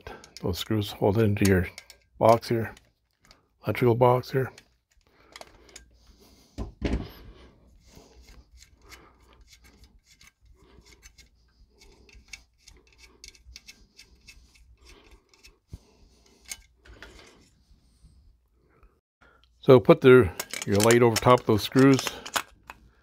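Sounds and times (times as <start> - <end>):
metal scrapes and clicks: 0.2 - 3.4, 8.2 - 17.6, 20.3 - 22.8.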